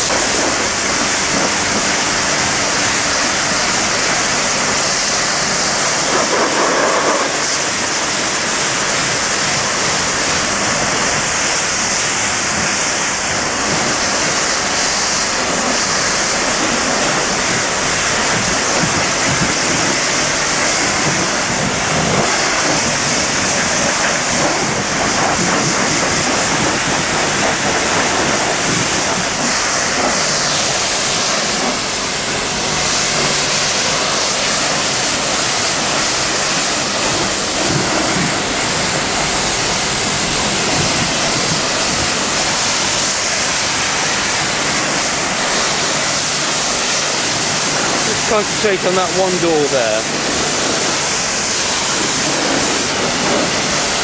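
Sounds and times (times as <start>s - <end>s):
pressure washer spraying water: 0.0s - 54.0s.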